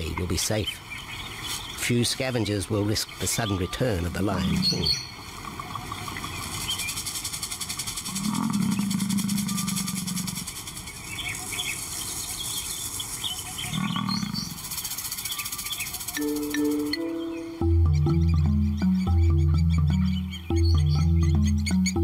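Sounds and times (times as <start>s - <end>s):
faint bird chirps: 3.0s - 7.3s, 8.1s - 22.0s
insect hiss: 4.3s - 18.9s
lion roaring: 8.1s - 10.4s, 13.7s - 14.6s
music: 16.1s - 22.0s.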